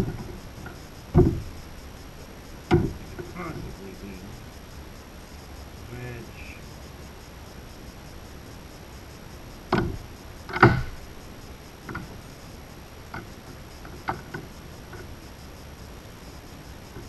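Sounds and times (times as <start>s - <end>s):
cable handling knocks and ticks: 0.0s - 1.5s, 2.7s - 3.8s, 9.7s - 11.0s, 11.9s - 12.1s, 13.1s - 15.1s.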